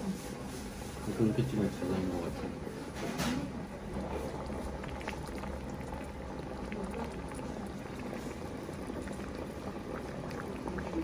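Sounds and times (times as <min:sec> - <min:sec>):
food sizzling: 0:03.5 - 0:11.0.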